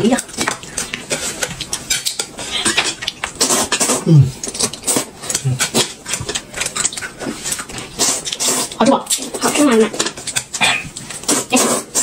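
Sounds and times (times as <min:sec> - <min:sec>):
chopsticks against plate: 0:00.0 - 0:12.0
person humming mm: 0:04.0 - 0:04.4.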